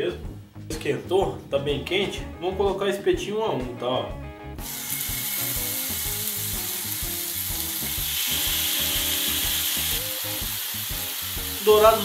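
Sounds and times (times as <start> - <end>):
chicken skewers sizzling in oil: 4.6 - 12.0.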